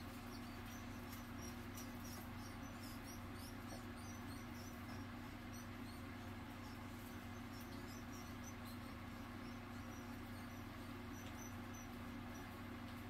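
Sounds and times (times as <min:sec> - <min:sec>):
rodent squeaking: 0:00.0 - 0:13.0
steady low hum: 0:00.0 - 0:13.0.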